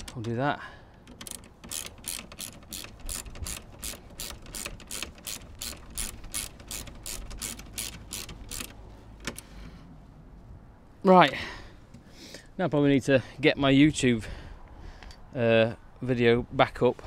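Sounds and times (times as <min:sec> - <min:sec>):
ratchet wrench clicking: 0:00.0 - 0:09.5.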